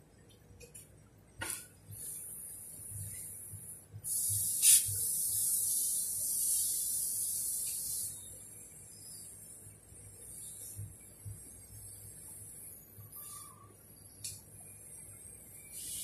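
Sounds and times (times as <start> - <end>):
welding arc hissing crackle: 2.0 - 8.5, 15.6 - 16.0.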